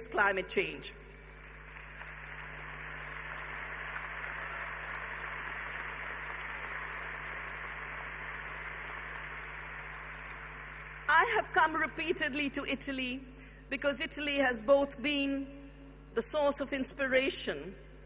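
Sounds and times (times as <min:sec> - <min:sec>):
large audience applauding: 0:01.2 - 0:11.1.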